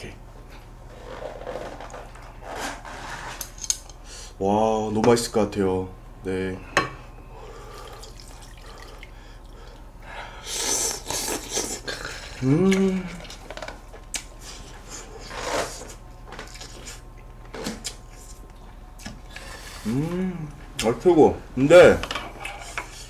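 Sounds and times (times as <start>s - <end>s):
scraping and shuffling noises: 0.4s - 3.6s, 14.4s - 18.4s
person humming mm: 10.6s - 13.3s, 19.7s - 20.6s.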